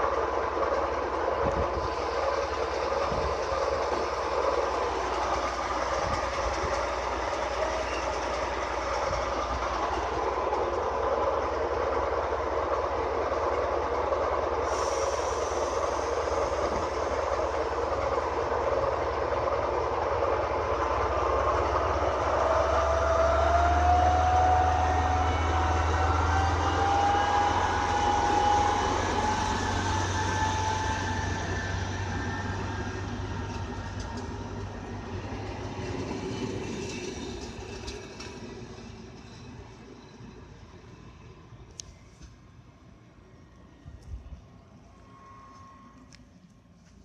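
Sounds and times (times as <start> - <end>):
diesel engine hum: 0.0 - 47.0
rising train whine: 0.0 - 47.0
wheel clicks over rail joints: 33.3 - 40.0.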